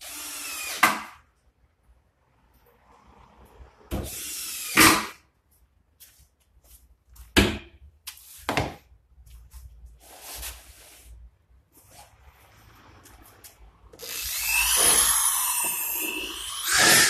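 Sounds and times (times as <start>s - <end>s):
soft scraping rustle: 9.3s - 13.6s.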